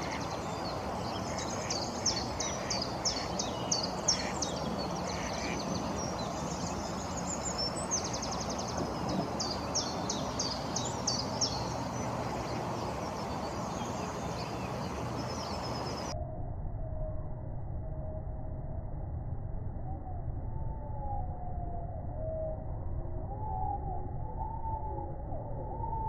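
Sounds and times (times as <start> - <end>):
outdoor background hiss: 0.0 - 16.1
songbirds chirping: 0.0 - 16.1.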